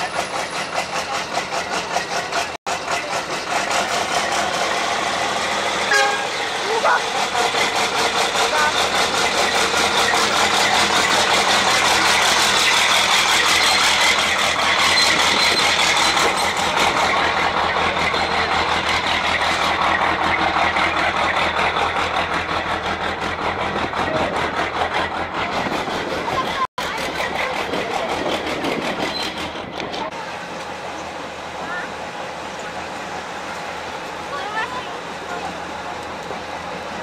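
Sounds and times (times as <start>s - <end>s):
truck diesel engine driving past: 0.0s - 28.0s.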